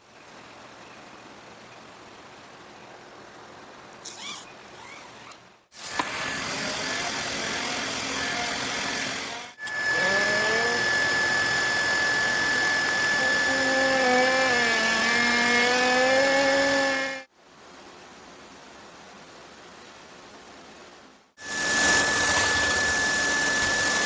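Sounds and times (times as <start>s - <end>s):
hot-air welder blower whine: 5.8s - 17.3s, 21.4s - 24.0s.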